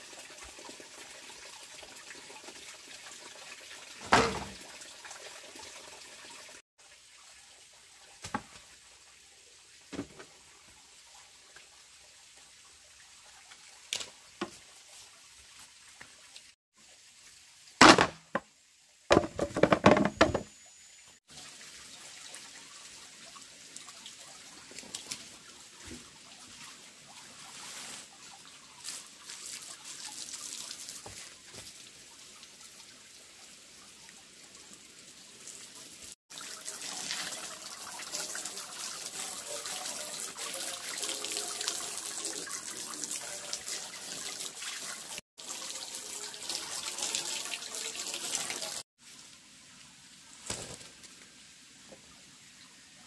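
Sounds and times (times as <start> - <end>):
hose water splashing on slats: 0.0 - 6.2, 6.8 - 20.5, 21.2 - 52.6.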